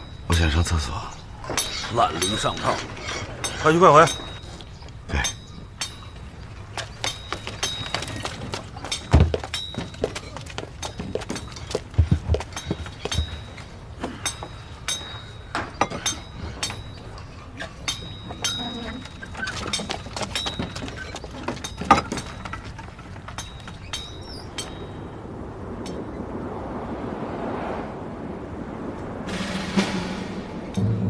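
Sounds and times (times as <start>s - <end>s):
metallic clinks and knocks: 1.4s - 25.1s
rising whoosh: 24.1s - 31.0s.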